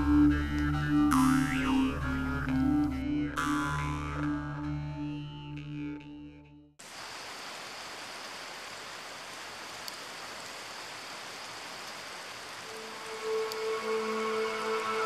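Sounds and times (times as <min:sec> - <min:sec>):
music: 0:00.0 - 0:06.8, 0:12.7 - 0:15.0.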